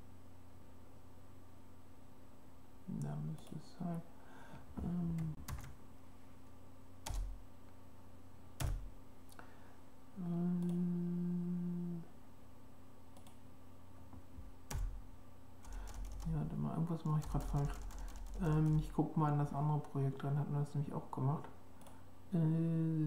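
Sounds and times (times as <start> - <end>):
person humming: 4.8 - 5.4, 10.2 - 12.2, 22.3 - 23.0
computer keyboard keystrokes: 15.6 - 16.3, 17.2 - 18.9.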